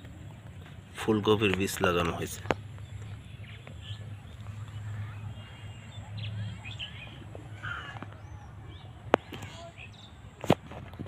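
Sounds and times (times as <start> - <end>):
faint bird chirps: 2.6 - 10.3.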